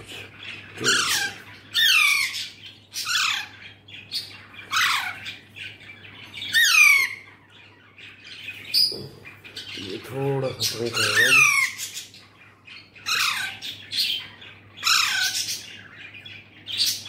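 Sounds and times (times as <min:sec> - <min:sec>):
parrot squawking: 0:00.0 - 0:17.0.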